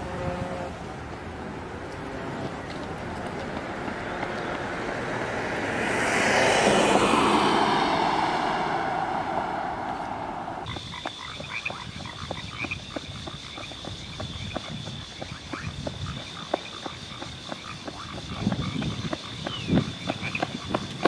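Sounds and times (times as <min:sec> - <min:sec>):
car passing by: 0:01.3 - 0:10.7
running footsteps on gravel: 0:02.4 - 0:05.0, 0:10.7 - 0:21.0.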